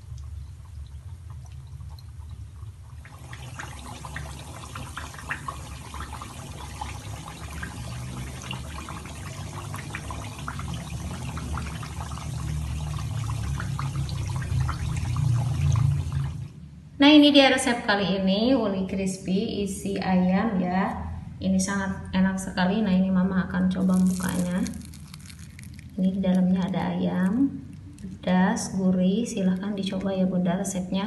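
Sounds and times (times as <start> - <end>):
food deep-frying in oil: 0.0 - 16.5, 23.6 - 30.8
steady low hum: 0.0 - 31.0.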